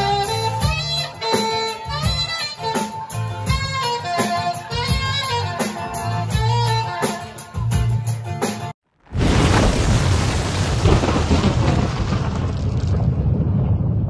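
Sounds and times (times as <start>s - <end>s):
saxophone melody: 0.0s - 8.1s
backing band with bass line: 0.0s - 8.7s.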